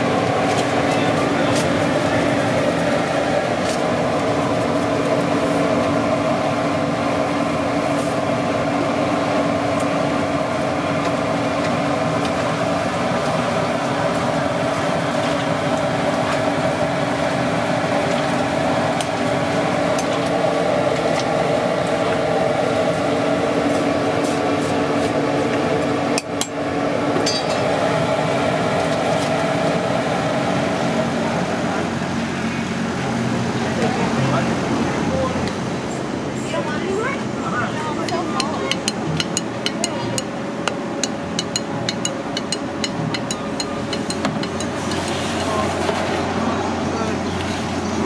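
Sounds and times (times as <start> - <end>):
kitchen machinery humming: 0.0 - 48.0
spoon ticking on pot: 38.1 - 44.8.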